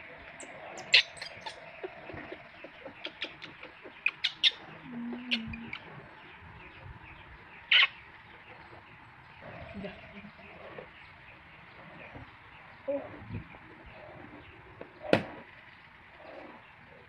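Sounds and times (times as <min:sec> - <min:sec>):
baby monkey squeaking: 0:00.8 - 0:01.6, 0:03.0 - 0:04.6.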